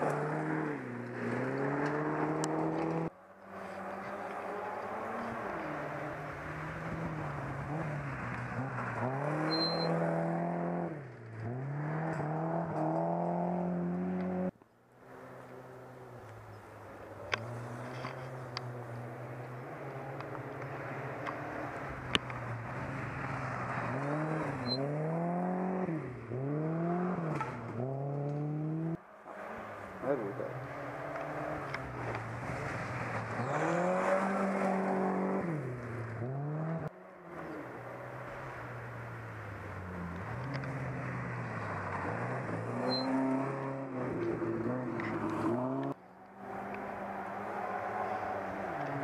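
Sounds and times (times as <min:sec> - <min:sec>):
car engine accelerating hard: 0:00.0 - 0:14.6, 0:15.3 - 0:49.0.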